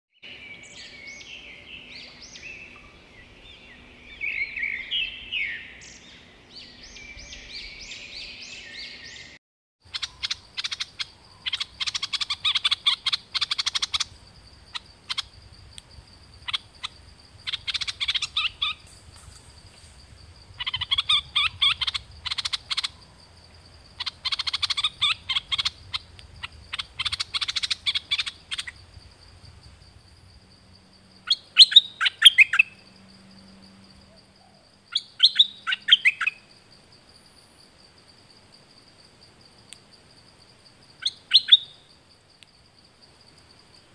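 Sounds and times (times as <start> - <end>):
bird chattering song: 0.2 - 15.4, 16.4 - 19.5, 20.5 - 23.2, 24.0 - 28.8, 31.2 - 32.8, 34.4 - 36.5, 41.0 - 41.9
dense bird chirps: 0.2 - 15.5, 16.3 - 28.8.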